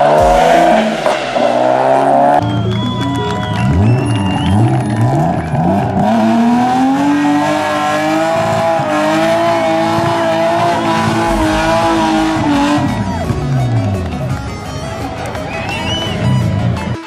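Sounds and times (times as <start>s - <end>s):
car engine revving hard: 3.8s - 13.0s.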